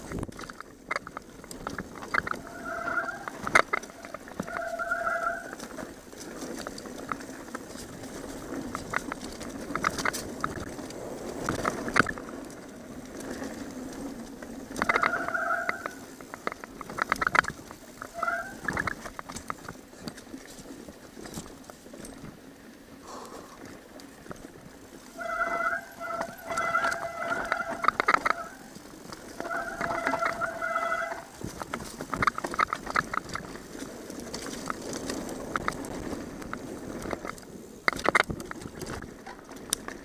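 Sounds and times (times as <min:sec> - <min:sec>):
bike tyres on dirt and rocks: 0:00.0 - 0:40.0
bike brakes squealing: 0:02.2 - 0:05.8, 0:14.8 - 0:16.2, 0:18.0 - 0:18.9, 0:25.1 - 0:31.4.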